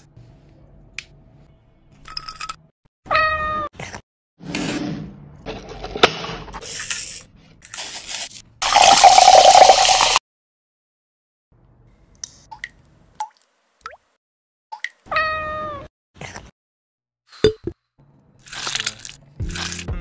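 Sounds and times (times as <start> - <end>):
cat meowing: 3.1 - 3.7, 15.1 - 15.9.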